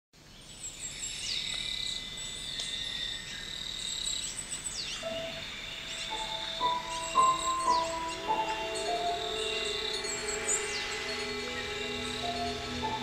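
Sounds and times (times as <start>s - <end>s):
insect tone: 0.3s - 13.0s
birds whistling: 0.8s - 13.0s
low musical notes: 6.0s - 13.0s.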